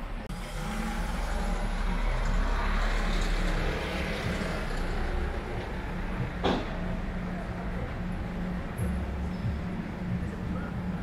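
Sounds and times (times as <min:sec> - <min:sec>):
vehicle driving past: 0:00.3 - 0:08.5.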